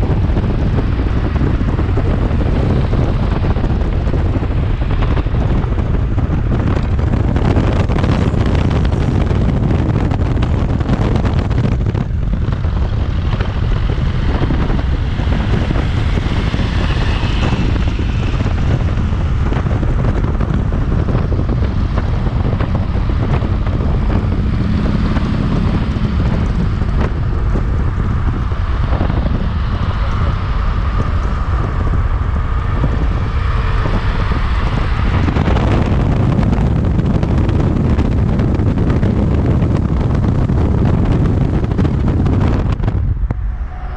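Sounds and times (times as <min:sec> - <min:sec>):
car tyre and road noise: 0:00.0 - 0:43.9
wind buffeting microphone: 0:00.0 - 0:43.9.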